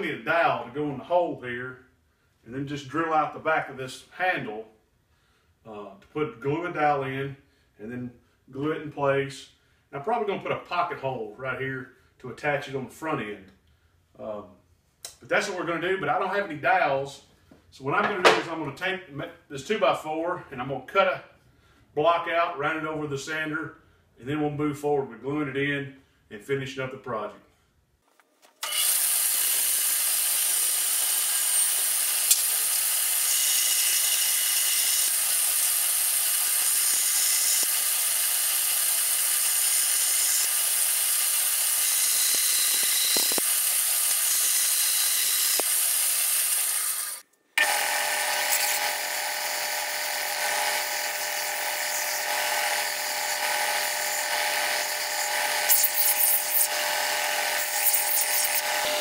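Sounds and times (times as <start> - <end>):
bandsaw cutting wood: 28.5 - 59.0
belt sander sanding wood: 28.6 - 59.0.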